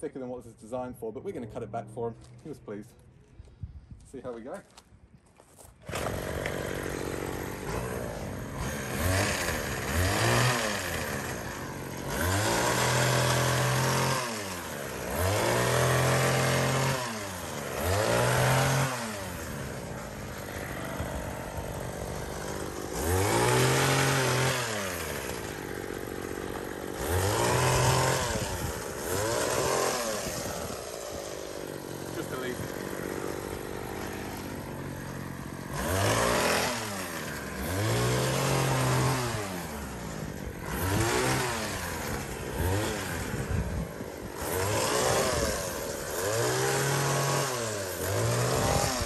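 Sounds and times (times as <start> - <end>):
hedge cutter engine revving: 5.8 - 49.0.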